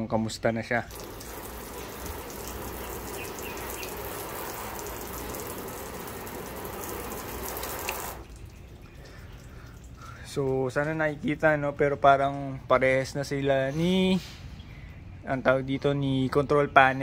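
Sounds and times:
water spray hissing on metal: 0.9 - 8.5.

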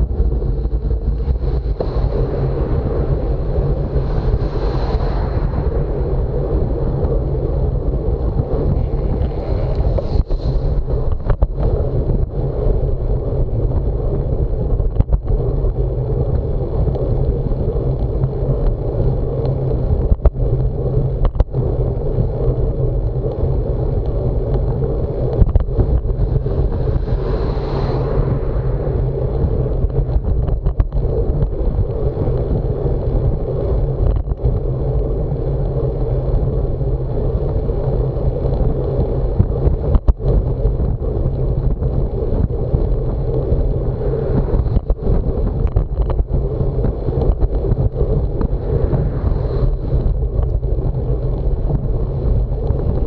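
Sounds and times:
low road rumble: 0.0 - 53.0
wind rushing over microphone: 0.0 - 53.0.

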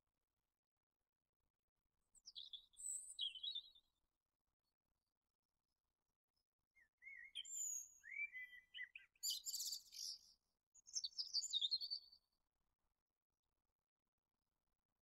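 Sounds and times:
songbird singing: 2.2 - 4.0, 6.8 - 12.2.

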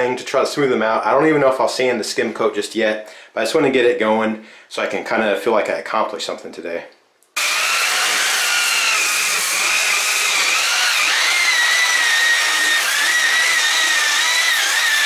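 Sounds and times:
rotary sander on drywall: 7.4 - 15.0.

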